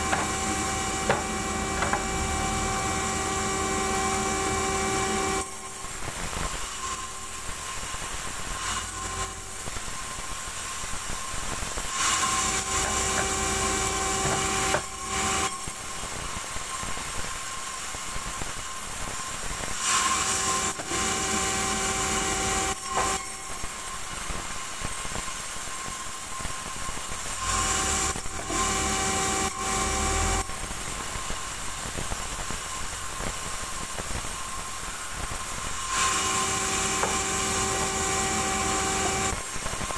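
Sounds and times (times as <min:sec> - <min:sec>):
saw blade cutting log: 0:00.0 - 0:05.8, 0:12.0 - 0:15.6, 0:19.8 - 0:23.6, 0:27.4 - 0:30.5, 0:35.8 - 0:39.4
band saw humming: 0:00.0 - 0:09.7, 0:12.0 - 0:15.9, 0:19.9 - 0:23.9, 0:27.4 - 0:30.8, 0:35.7 - 0:39.6.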